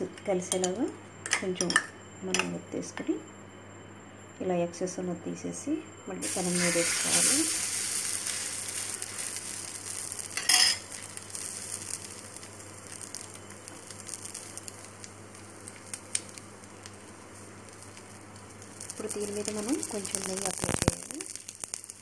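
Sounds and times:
bread sizzling on griddle: 6.2s - 22.0s.

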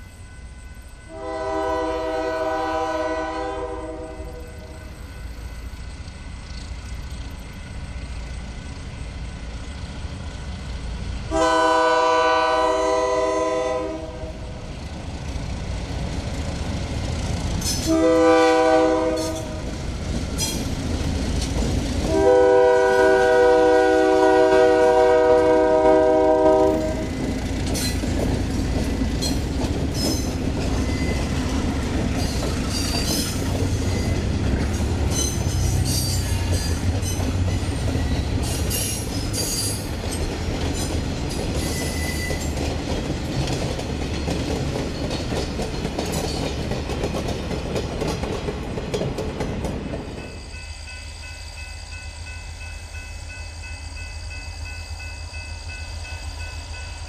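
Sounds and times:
freight train engine rumble: 0.0s - 57.0s
locomotive air horn blasts: 1.1s - 4.8s, 11.3s - 14.5s, 17.8s - 19.6s, 22.1s - 27.2s
wheels clicking over rail joints: 19.1s - 22.2s, 27.1s - 50.3s.

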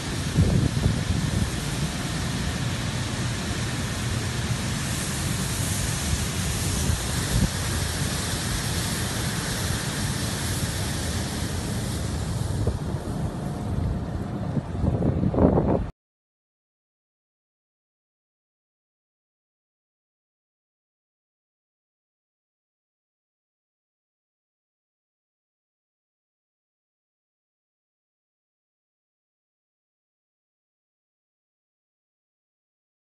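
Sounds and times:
grain pouring from a spout: 0.0s - 13.0s
wind buffeting microphone: 0.0s - 15.9s.

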